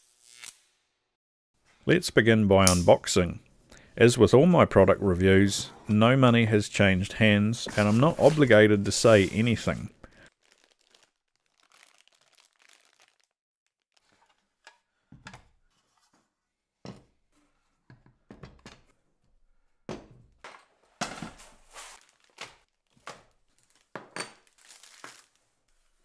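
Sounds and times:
plastic bags crinkling: 7.8 - 14.1, 21.6 - 25.4.

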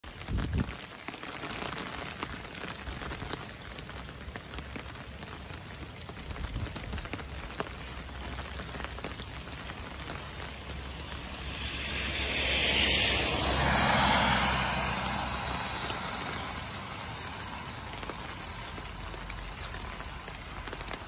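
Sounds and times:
rain falling: 0.0 - 21.0
car tyres hissing on wet road: 6.7 - 21.0.

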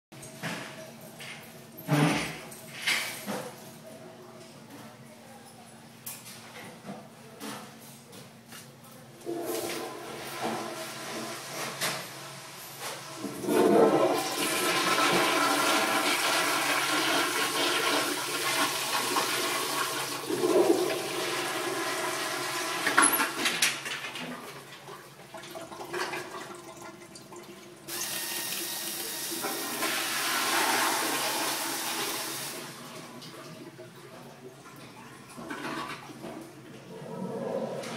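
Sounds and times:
toilet flushing: 9.2 - 37.9.

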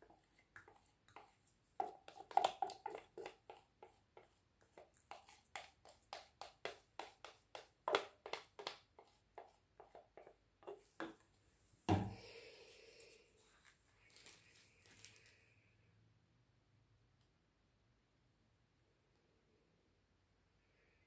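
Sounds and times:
stir stick scraping in plastic cup: 0.0 - 11.2.

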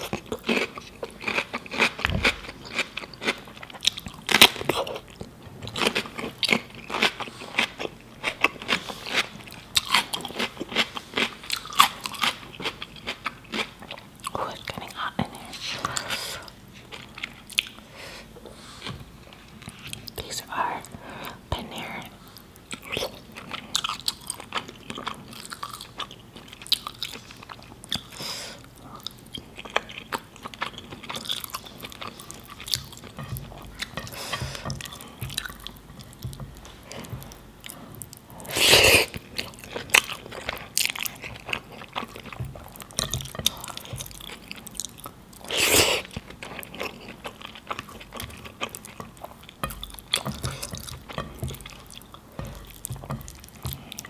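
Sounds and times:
close chewing with wet mouth clicks: 16.9 - 17.8, 22.7 - 28.2, 28.8 - 54.0.

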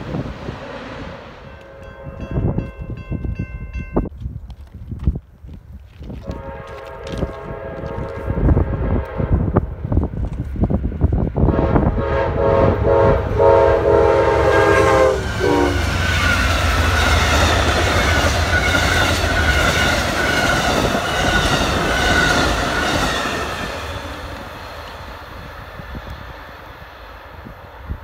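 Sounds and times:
train horn: 1.4 - 2.7, 6.2 - 9.6, 11.5 - 24.3
train wheels rumbling and clacking: 4.0 - 28.0.

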